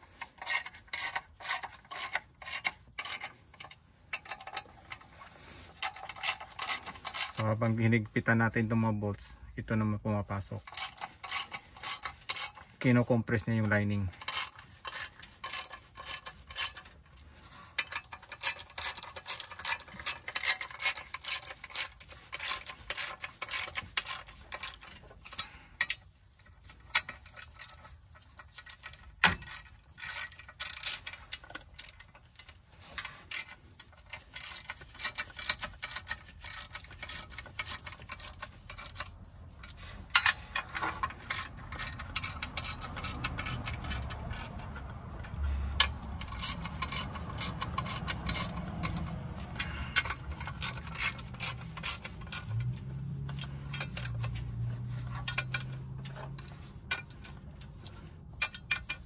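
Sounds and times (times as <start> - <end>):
socket ratchet wrench clicking: 14.2 - 16.9, 17.8 - 26.0, 33.3 - 59.0.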